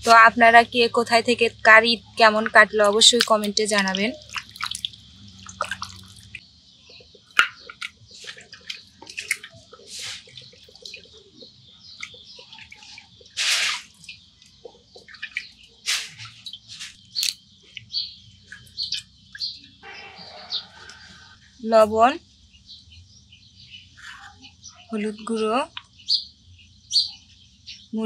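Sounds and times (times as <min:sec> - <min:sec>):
birds chirping: 0:00.0 - 0:28.0
water splashing in a steel bowl: 0:02.1 - 0:06.4, 0:07.3 - 0:11.2, 0:11.9 - 0:17.5.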